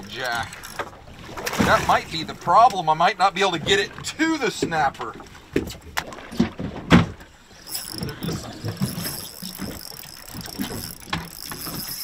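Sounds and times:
fishing reel whirring: 0:00.3 - 0:00.9, 0:07.5 - 0:12.0.

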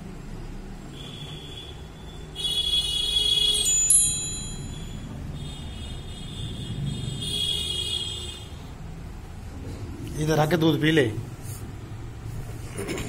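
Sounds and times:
high clear chime tones: 0:03.6 - 0:05.2.

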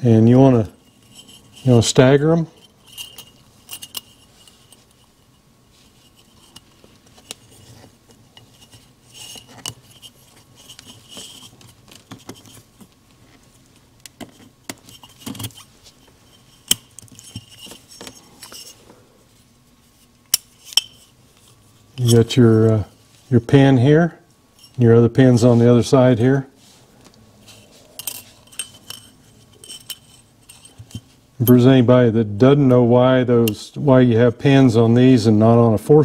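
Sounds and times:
metal rings clicking on piston: 0:02.6 - 0:05.2.

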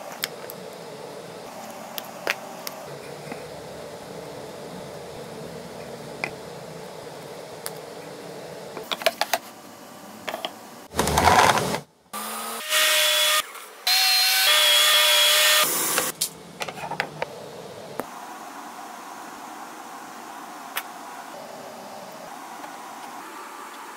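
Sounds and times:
table saw cutting wood: 0:11.0 - 0:16.1
table saw whine: 0:12.2 - 0:16.1.

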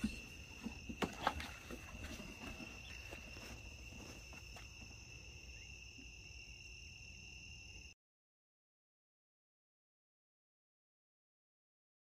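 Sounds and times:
crickets trilling: 0:00.0 - 0:08.0.

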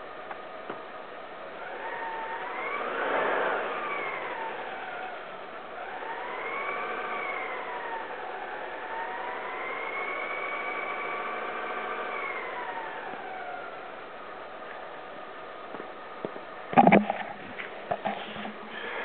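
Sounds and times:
car engine revving: 0:01.5 - 0:14.0.

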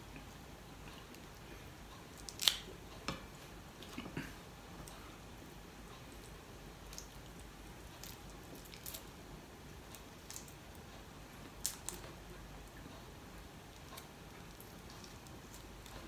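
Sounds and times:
prawn shell peeling crackles: 0:02.1 - 0:02.7, 0:08.0 - 0:09.1, 0:09.9 - 0:10.8, 0:11.6 - 0:12.2, 0:13.7 - 0:16.0.

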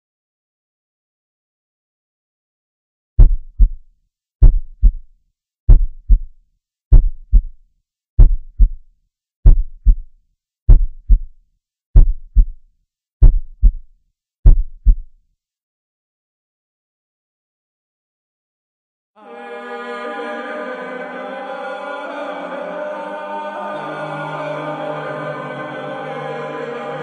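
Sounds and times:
heartbeat thumps: 0:03.2 - 0:03.8, 0:04.4 - 0:05.1, 0:05.7 - 0:07.6, 0:08.2 - 0:08.8, 0:09.4 - 0:10.1, 0:10.7 - 0:11.4, 0:12.0 - 0:12.6, 0:13.2 - 0:15.2.

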